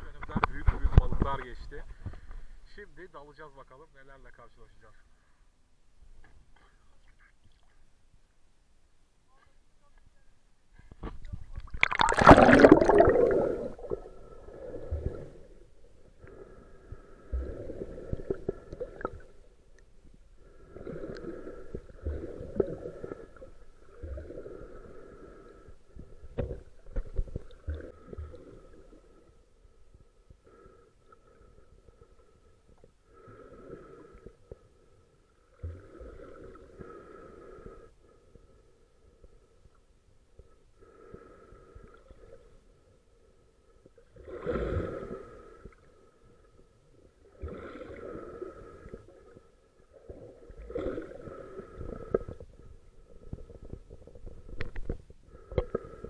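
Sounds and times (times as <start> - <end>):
underwater water noise: 10.6 - 56.0
loud splash into water: 11.7 - 13.8.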